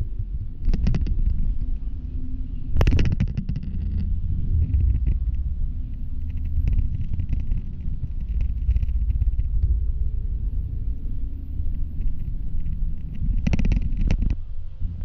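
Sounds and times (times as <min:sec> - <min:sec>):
bus engine rumble: 0:00.0 - 0:15.0
faint rattling clicks: 0:02.7 - 0:14.4.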